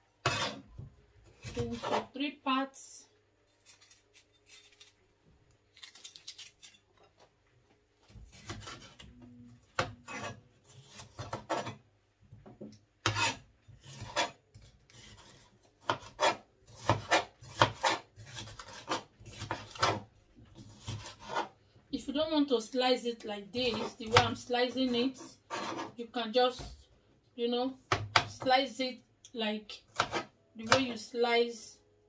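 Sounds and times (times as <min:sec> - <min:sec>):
knife cutting on a cutting board: 0:00.2 - 0:00.7, 0:01.3 - 0:02.1, 0:08.2 - 0:09.2, 0:09.8 - 0:11.8, 0:13.0 - 0:21.6, 0:23.6 - 0:26.0, 0:29.9 - 0:30.9.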